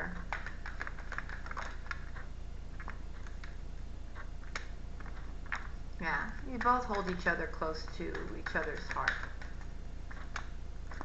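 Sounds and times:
cards being shuffled: 0.1 - 3.6, 6.5 - 11.0.

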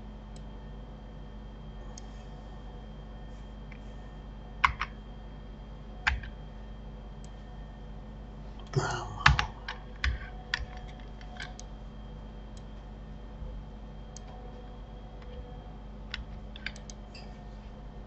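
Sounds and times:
faint steady hum: 0.0 - 18.0
keyboard keystrokes and clicks: 4.6 - 5.0, 6.0 - 6.4, 9.2 - 11.7, 16.1 - 17.3.

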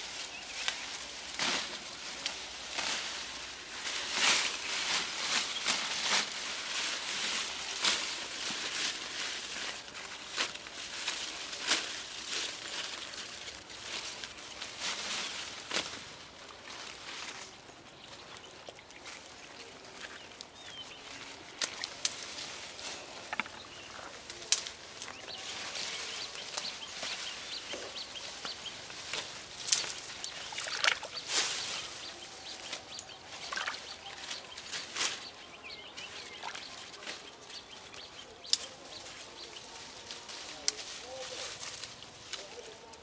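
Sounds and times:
leafy branches rustling: 0.0 - 43.0
twigs snapping: 21.5 - 22.3, 24.3 - 25.2, 29.1 - 31.2, 38.4 - 38.8.

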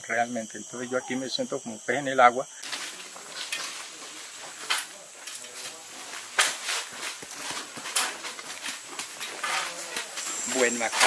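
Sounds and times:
steady high hiss: 0.0 - 11.0
plastic bags rustling: 2.6 - 10.9
soil scraping scuffs: 2.6 - 11.0.

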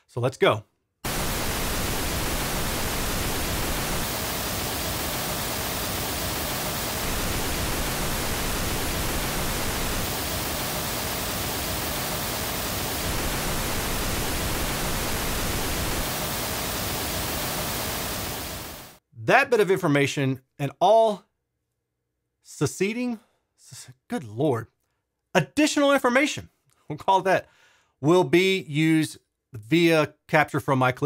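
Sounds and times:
pink noise hiss: 1.0 - 19.0.

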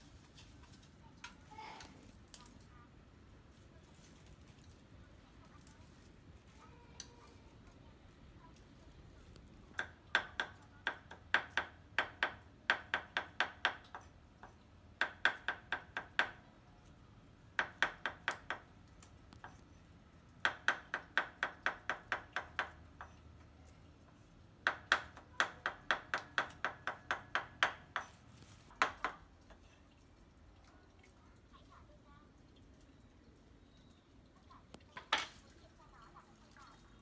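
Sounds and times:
cleaver chopping on wooden block: 20.4 - 23.2, 24.6 - 28.2.

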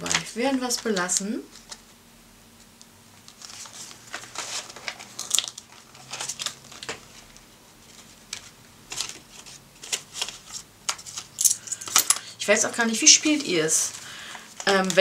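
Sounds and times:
banknotes rustling: 0.0 - 2.0, 3.2 - 15.0
plastic pocket crinkling: 3.2 - 12.0.

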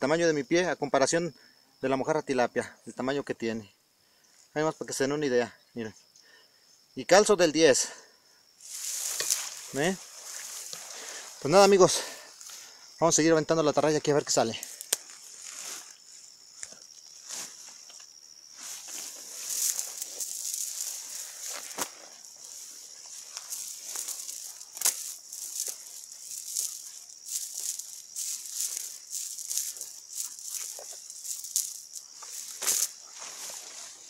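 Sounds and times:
insects chirring: 0.0 - 34.0
rustles and clicks: 8.6 - 11.7, 14.5 - 34.0.

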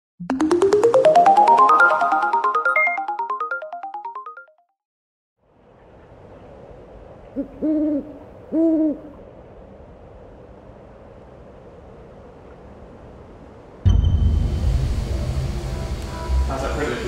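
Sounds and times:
owl hooting: 7.3 - 9.2
eerie hissing ambience: 13.9 - 17.0.

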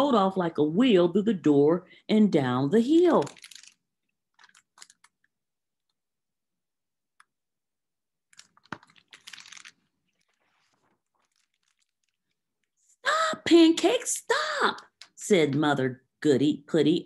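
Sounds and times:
picture book rustling: 2.8 - 6.0, 8.3 - 12.9.

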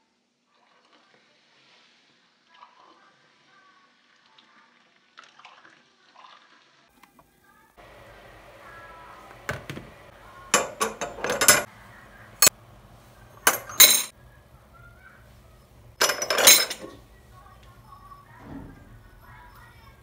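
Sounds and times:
metal grates clanking in bowl: 10.4 - 11.7, 13.3 - 14.1, 16.0 - 17.0.

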